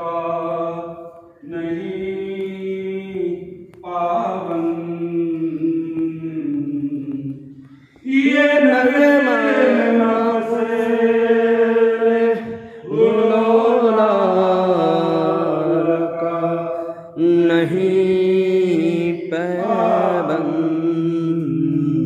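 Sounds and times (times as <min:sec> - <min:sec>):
person chanting devotional phrases: 0:00.0 - 0:22.0.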